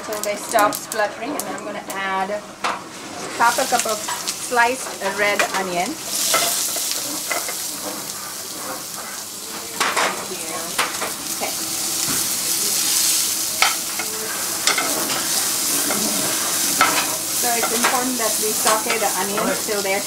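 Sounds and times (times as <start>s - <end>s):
onion sizzling in oil: 2.9s - 20.0s
metal spoon scraping a pan: 13.6s - 19.8s.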